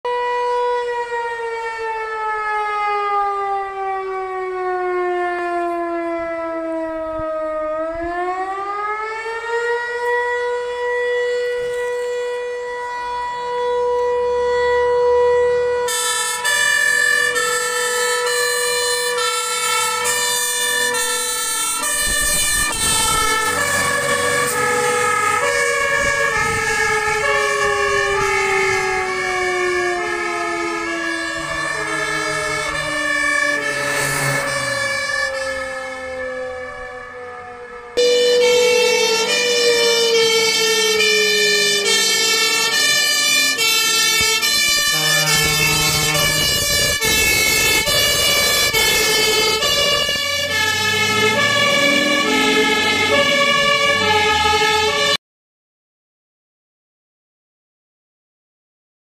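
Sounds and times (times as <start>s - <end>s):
alarm siren wailing: 0.0s - 55.2s
fire engine electronic siren: 0.0s - 55.2s
heavy truck rumble: 15.9s - 55.2s.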